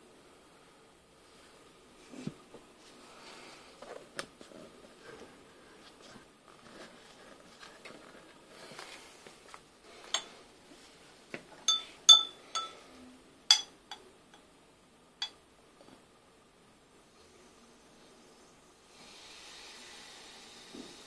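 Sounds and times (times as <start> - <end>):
glassware clinking: 11.7 - 12.9, 13.5 - 14.0.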